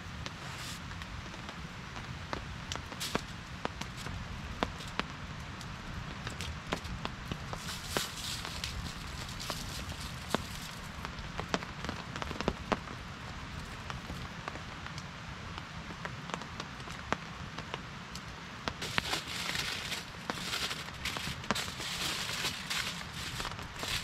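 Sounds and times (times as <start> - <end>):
campfire popping and crackling: 0.0 - 24.0
steady rain: 0.0 - 24.0
loud hiss: 18.8 - 24.0.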